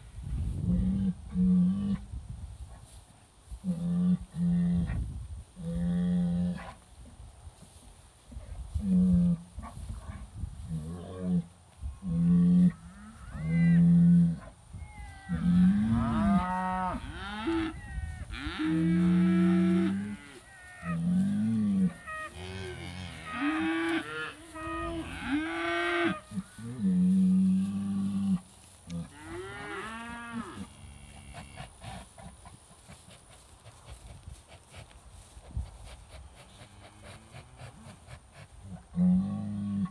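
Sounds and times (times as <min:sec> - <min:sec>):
cows mooing: 0:15.1 - 0:28.4.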